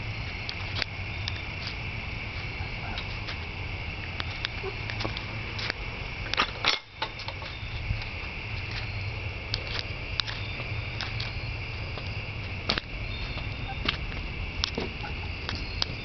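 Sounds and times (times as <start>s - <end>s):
low hum: 0.0s - 16.0s
high-pitched drone: 10.4s - 16.0s.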